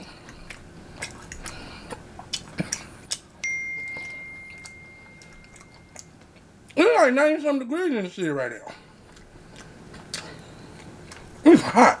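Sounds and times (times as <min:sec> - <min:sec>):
clicks and smacks of eating: 0:00.0 - 0:06.8, 0:08.8 - 0:11.8
bright notification chime: 0:03.4 - 0:06.0.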